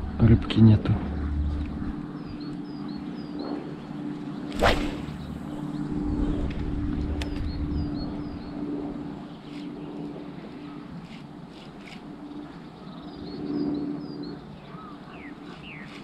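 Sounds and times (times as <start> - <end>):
fishing rod swishing: 4.5 - 5.4.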